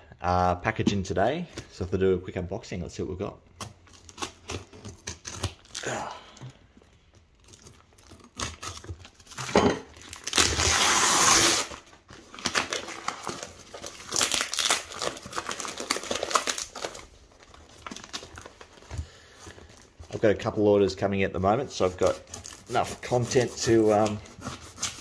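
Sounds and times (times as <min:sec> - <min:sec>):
wrapping crinkling: 0:03.8 - 0:20.7
paper wrapping ripping: 0:03.9 - 0:06.0, 0:07.4 - 0:18.8, 0:21.7 - 0:25.0.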